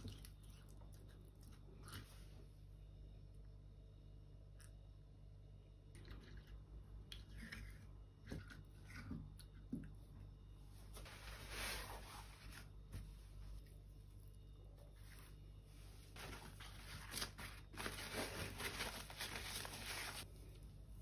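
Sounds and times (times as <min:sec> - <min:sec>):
paper towels tearing and rustling: 0:16.2 - 0:20.3.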